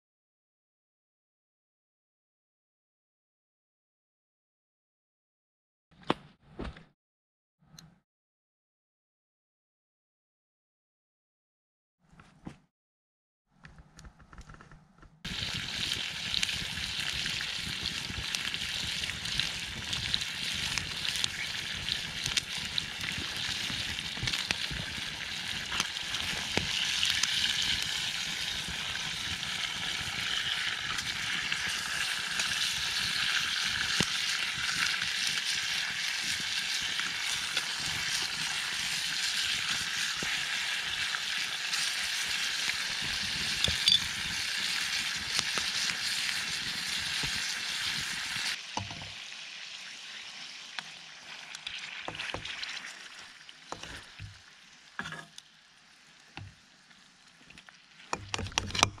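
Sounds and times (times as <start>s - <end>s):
campfire crackling: 15.3s - 48.6s
food sizzling in a frying pan: 15.3s - 58.2s.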